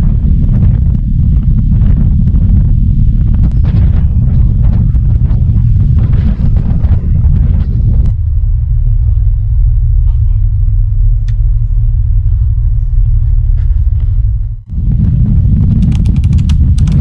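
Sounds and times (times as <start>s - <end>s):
ferry engines droning: 0.0s - 15.8s.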